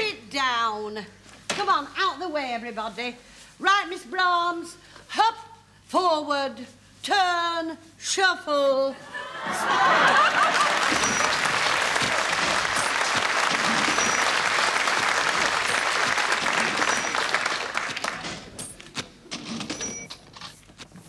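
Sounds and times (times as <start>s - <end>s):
audience applauding: 9.8s - 18.5s.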